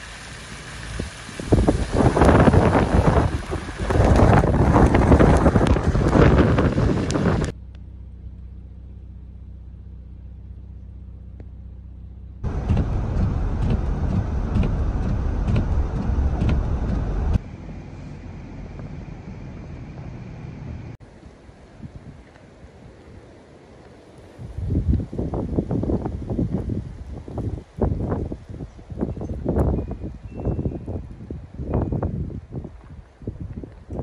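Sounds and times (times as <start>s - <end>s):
gusty wind rushing over microphone: 0.0s - 7.6s, 12.4s - 23.3s, 24.2s - 34.0s
steady low hum: 0.0s - 21.9s.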